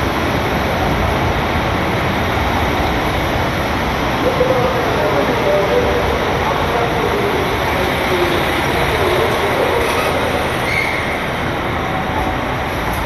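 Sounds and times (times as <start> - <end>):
diesel train rolling: 0.0 - 13.0
faint wheel and brake squeal: 9.8 - 11.3.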